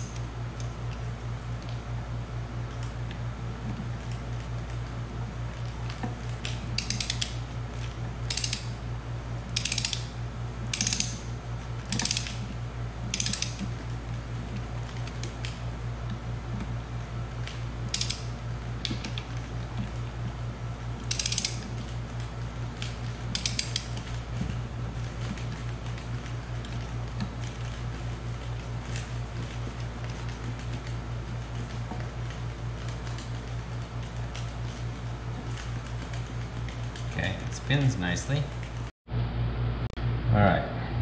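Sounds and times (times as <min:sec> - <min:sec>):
steady low hum: 0:00.0 - 0:41.0
socket ratchet clicking: 0:06.5 - 0:07.4, 0:08.2 - 0:08.8, 0:09.5 - 0:11.3, 0:11.9 - 0:12.5, 0:13.1 - 0:13.7, 0:17.9 - 0:19.3, 0:21.0 - 0:21.7, 0:22.8 - 0:24.0.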